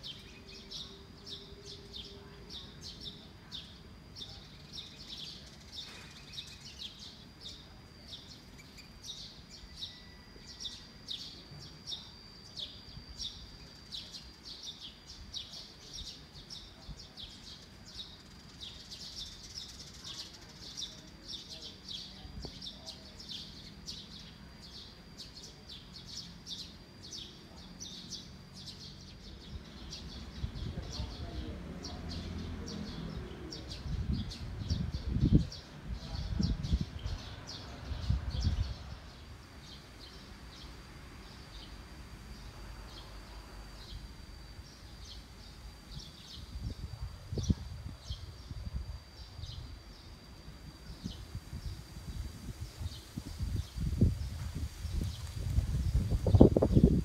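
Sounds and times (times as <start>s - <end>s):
faint steady high tone: 0.0s - 18.4s, 38.0s - 52.6s
birds chirping: 0.0s - 57.0s
low background noise: 0.0s - 57.0s.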